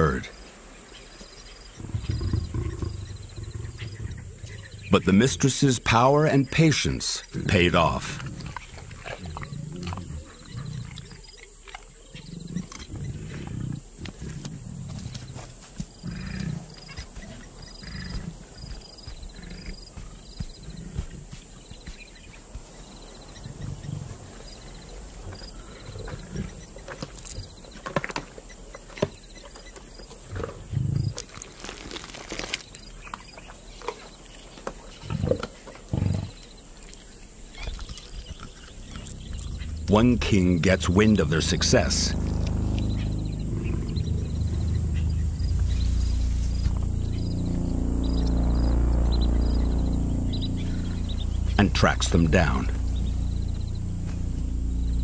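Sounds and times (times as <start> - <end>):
lioness growling low: 1.8 - 4.9, 8.1 - 11.2, 12.2 - 15.2
lionesses growling: 1.8 - 5.2, 7.4 - 21.6, 23.3 - 27.0, 35.0 - 36.4, 37.6 - 46.8
wet tearing and chewing of meat: 31.2 - 32.6.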